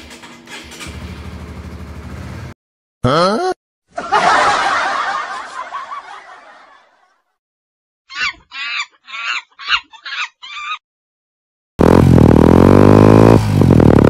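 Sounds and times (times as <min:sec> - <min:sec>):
motorcycle engine running: 0:00.8 - 0:02.5, 0:11.8 - 0:14.0
laugh sound effect: 0:03.0 - 0:06.9.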